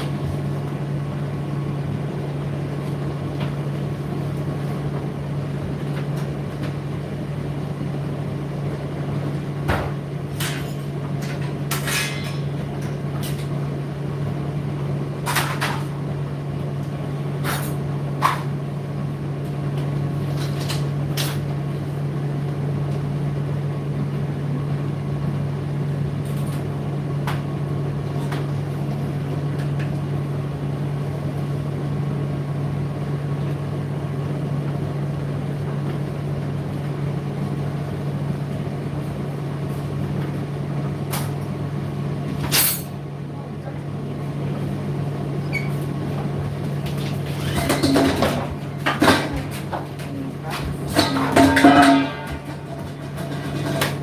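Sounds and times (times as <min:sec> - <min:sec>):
tumble dryer humming: 0:43.0 - 0:54.0.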